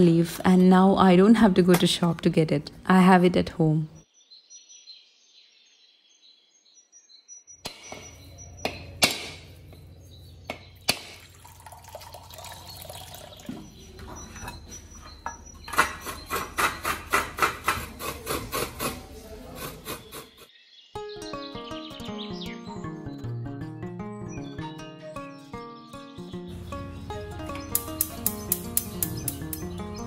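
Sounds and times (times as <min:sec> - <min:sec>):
birds chirping: 0:00.0 - 0:18.0, 0:19.0 - 0:30.0
knife striking coconut: 0:07.7 - 0:09.6
water trickling into steel tumbler: 0:10.9 - 0:13.8
coconut grating scraping: 0:15.7 - 0:20.5.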